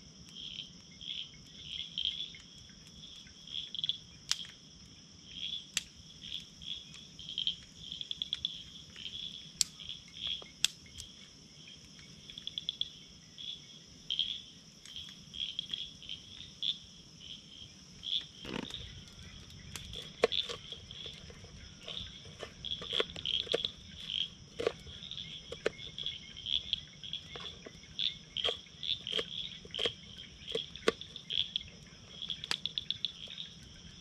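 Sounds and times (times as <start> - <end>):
crickets chirping: 0.0 - 34.0
campfire crackling pops: 3.8 - 4.8, 5.7 - 11.2, 18.1 - 26.1, 26.7 - 33.5.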